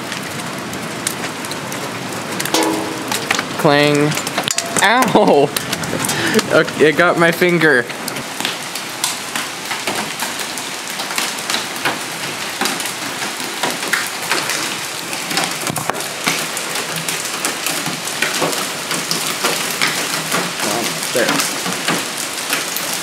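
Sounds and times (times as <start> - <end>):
hailstones striking hard surfaces: 2.4 - 6.8
heavy rain hissing: 4.8 - 8.3.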